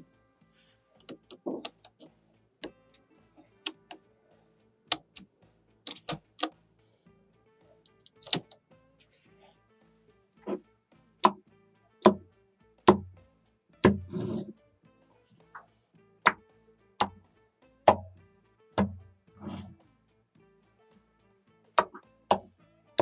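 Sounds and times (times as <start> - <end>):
faint background music: 0.0 - 23.0
magnetic balls clicking: 1.0 - 2.0.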